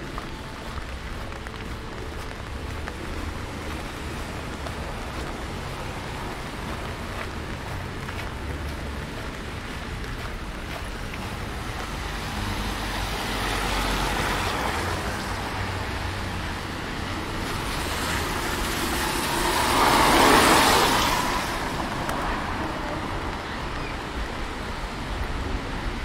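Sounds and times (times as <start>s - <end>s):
traffic rumble: 0.0s - 26.0s
tyre hiss on wet road: 12.0s - 23.2s.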